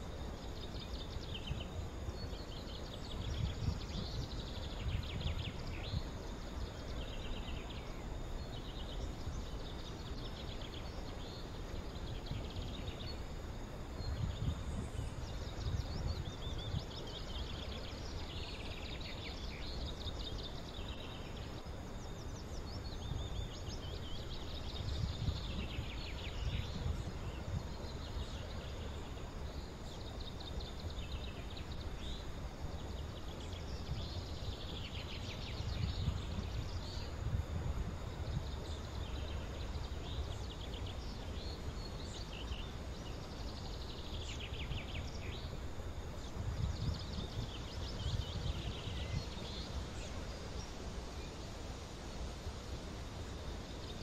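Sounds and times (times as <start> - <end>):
wind on microphone: 0.0 - 11.1, 11.7 - 20.7, 21.4 - 54.0.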